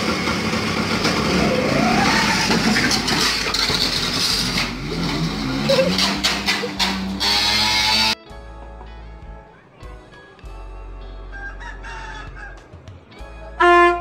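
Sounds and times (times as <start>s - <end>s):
scooter engine revving: 0.0s - 8.2s
sharp knocks and clatters: 2.5s - 7.7s.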